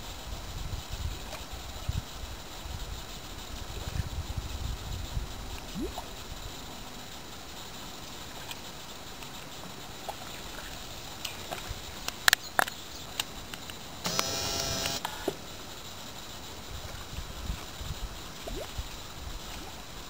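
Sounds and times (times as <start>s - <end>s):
outdoor background hiss: 0.0s - 20.0s
sharp clicks: 12.1s - 15.4s.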